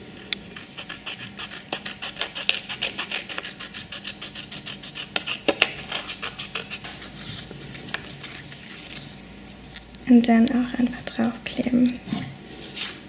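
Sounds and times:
scissors snipping paper: 0.6s - 7.1s
paper rustling: 6.7s - 9.8s, 12.4s - 13.0s.

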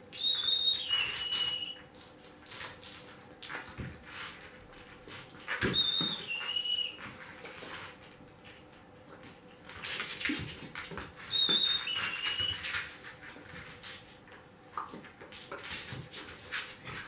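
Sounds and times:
faint knocks and rustles: 1.9s - 17.0s
two-note dog whistle: 5.8s - 7.0s, 11.3s - 12.6s.

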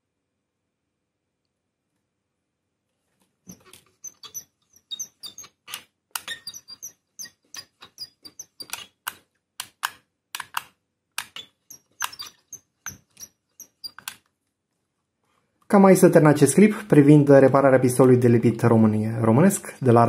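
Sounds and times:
small squeaky chirps: 3.5s - 9.0s, 11.2s - 14.2s.

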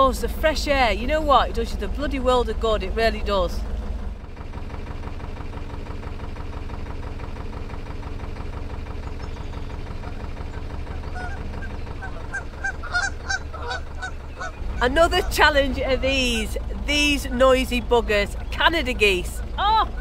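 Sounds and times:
boat engine running: 0.0s - 20.0s
geese honking: 10.0s - 19.2s.

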